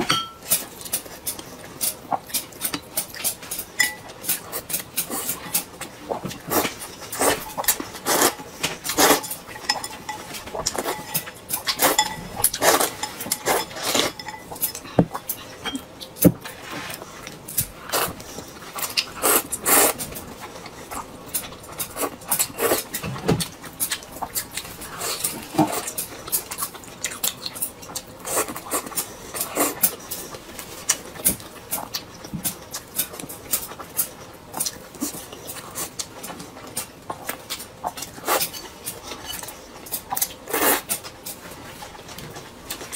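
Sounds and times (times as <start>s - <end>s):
chopsticks clinking on bowls: 0.0s - 0.6s, 3.5s - 4.4s, 7.2s - 15.9s
chewing: 0.4s - 42.9s.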